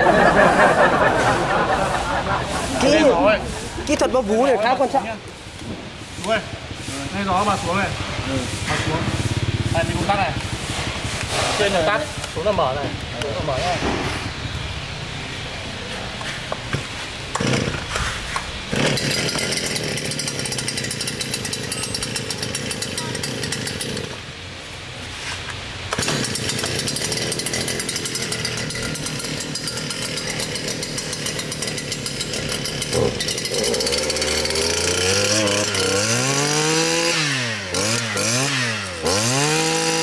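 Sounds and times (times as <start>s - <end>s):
brushcutter engine revving: 0.0s - 14.1s, 17.3s - 24.4s, 25.8s - 40.0s
pull-starter cord pulls: 25.9s - 36.0s.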